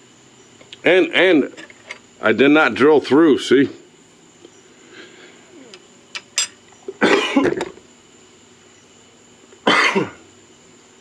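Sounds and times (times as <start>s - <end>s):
man coughing: 7.0s - 7.6s, 9.6s - 10.2s.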